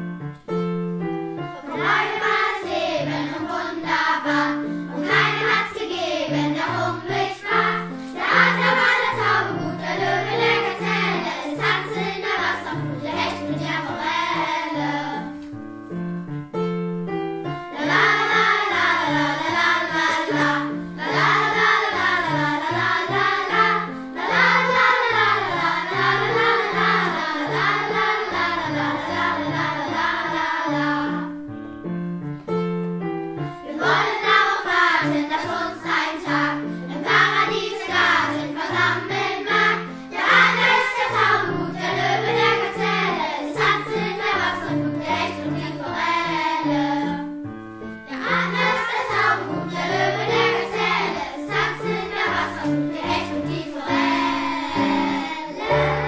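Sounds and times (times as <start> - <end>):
children's choir singing: 1.4 - 15.6, 17.4 - 31.5, 33.6 - 56.0.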